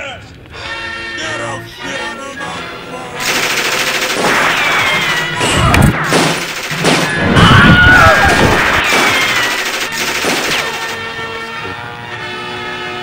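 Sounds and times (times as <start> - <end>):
rifle gunshots: 3.2 - 7.4, 8.1 - 11.0
dense noisy din: 3.2 - 11.5
crashing impacts: 4.2 - 9.6.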